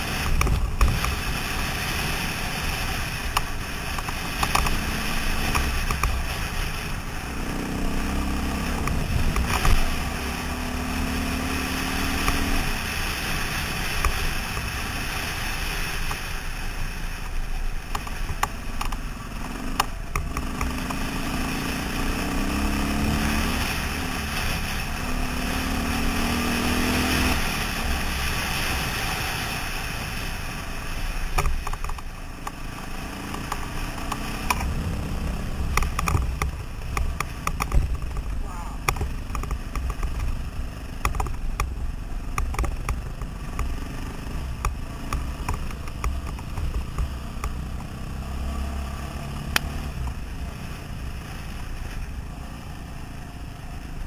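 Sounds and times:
dirt bike engine running: 0.0 - 54.0
wind and road noise: 0.0 - 54.0
scattered clicks: 35.6 - 40.4, 41.0 - 43.8.

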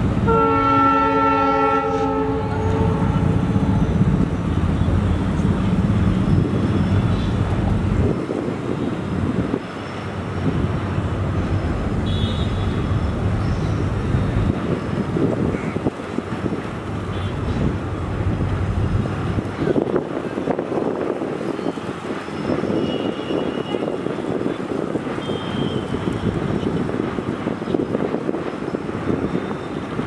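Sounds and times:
locomotive horn chord: 0.3 - 3.4.

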